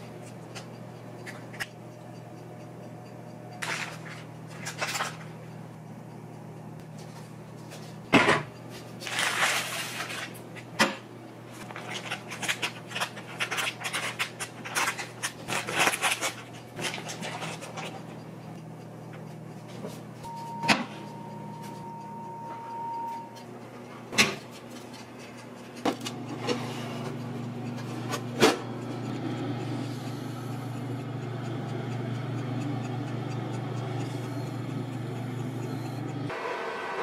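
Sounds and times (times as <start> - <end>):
kitchen appliance humming: 0.0 - 37.0
long steady beep: 20.2 - 23.5.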